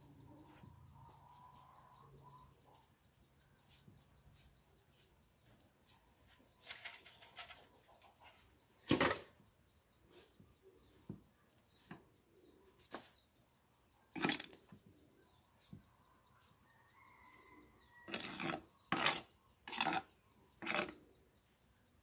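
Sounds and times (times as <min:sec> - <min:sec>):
hands rustling soil in a pot: 0:00.0 - 0:08.8, 0:10.0 - 0:13.4.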